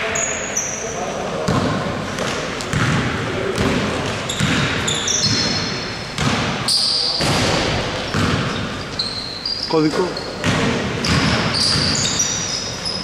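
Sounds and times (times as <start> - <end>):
sneakers squeaking on court: 0.0 - 13.0
basketball bouncing on hardwood floor: 2.7 - 5.6, 6.2 - 6.6, 7.2 - 8.6, 10.4 - 12.2.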